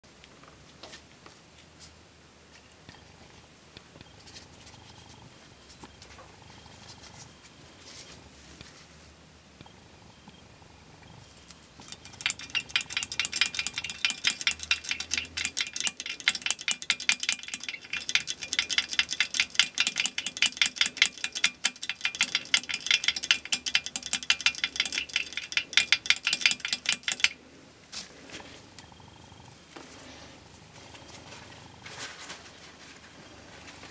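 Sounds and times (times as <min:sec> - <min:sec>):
rod clinking against glass vial: 0:11.8 - 0:27.4.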